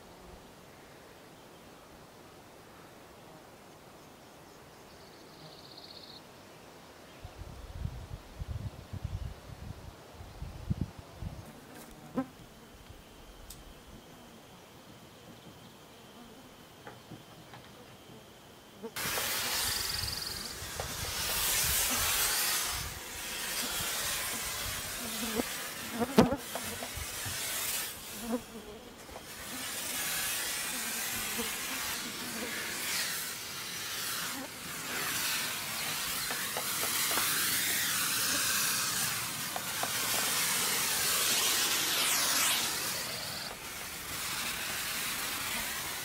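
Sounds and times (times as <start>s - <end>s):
insect fogger hissing: 11.2s - 46.0s.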